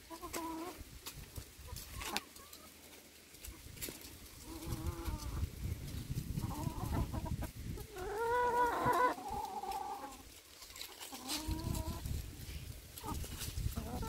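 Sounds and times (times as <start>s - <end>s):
drawn-out chicken call: 0.0s - 0.8s, 1.6s - 2.8s, 4.4s - 5.6s, 6.3s - 12.2s, 13.0s - 14.0s
chickens clucking: 0.0s - 14.0s.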